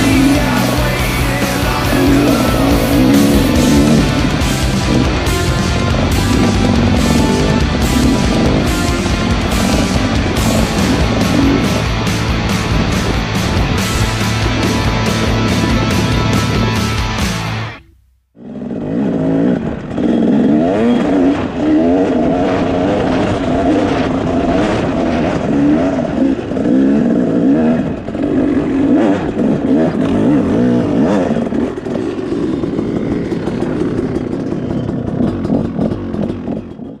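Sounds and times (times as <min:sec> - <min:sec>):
dirt bike engine revving: 0:00.0 - 0:37.0.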